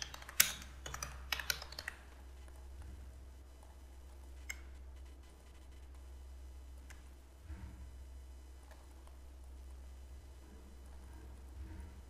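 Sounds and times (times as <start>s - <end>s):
mouse and keyboard clicks: 0.0s - 2.6s
low electrical hum: 0.0s - 12.0s.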